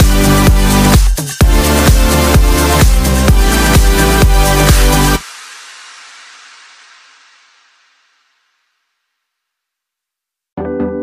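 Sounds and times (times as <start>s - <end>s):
electronic dance music: 0.0s - 8.6s.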